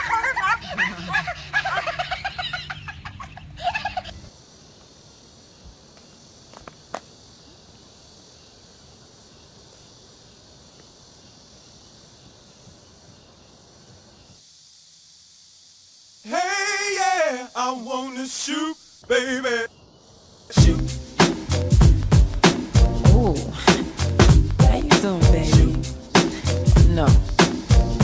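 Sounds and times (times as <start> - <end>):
faint steady hiss: 0.0 - 22.9
person singing wavering phrases: 16.2 - 19.7, 20.5 - 21.0, 23.0 - 24.0, 24.6 - 27.2.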